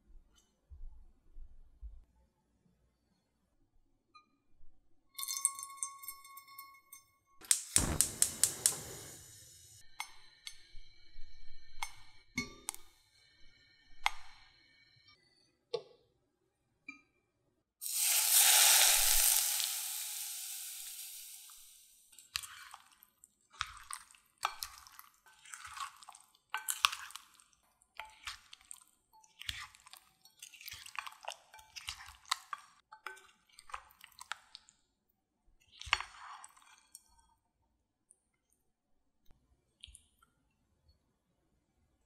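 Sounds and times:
hot oil sizzling: 0:07.4 - 0:09.8, 0:17.8 - 0:22.0
spoon squishing dumplings in glass bowl: 0:21.5 - 0:34.7.

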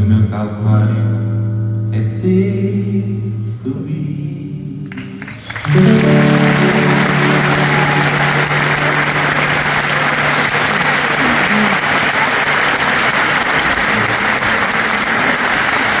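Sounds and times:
arena audience applauding: 0:04.9 - 0:16.0
song's held chord: 0:05.7 - 0:15.0.

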